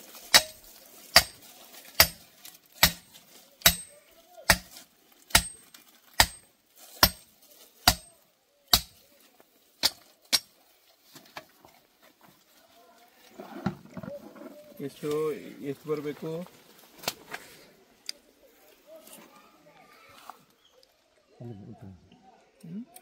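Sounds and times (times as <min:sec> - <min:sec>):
hammer striking metal tube: 0:00.3 - 0:01.4, 0:02.0 - 0:02.2, 0:02.8 - 0:03.9, 0:04.5 - 0:05.6, 0:06.2 - 0:06.4, 0:07.0 - 0:08.1, 0:08.7 - 0:09.0.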